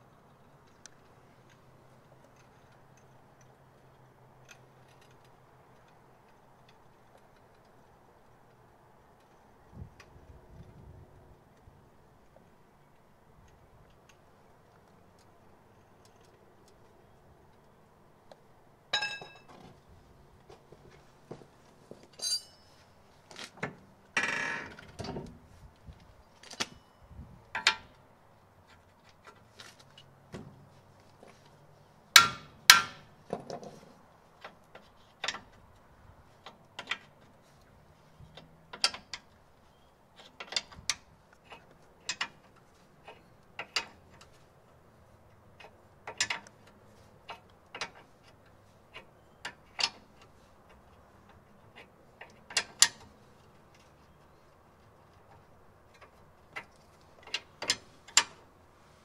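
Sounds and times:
metal clanks: 0:19.0 - 0:19.8, 0:22.1 - 0:22.8.

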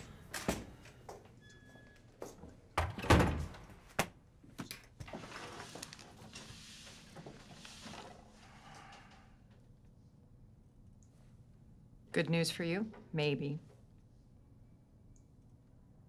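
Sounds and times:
door opening and shutting: 0:02.8 - 0:03.8.

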